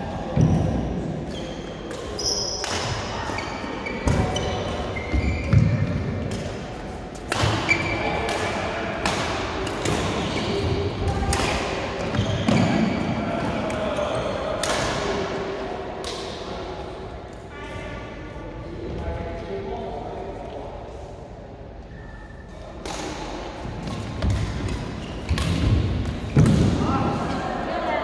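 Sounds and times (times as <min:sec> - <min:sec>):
shoes squeaking on court: 0:03.3 - 0:05.8, 0:12.1 - 0:12.9
racket hitting shuttlecock: 0:05.5 - 0:12.9, 0:22.8 - 0:26.8.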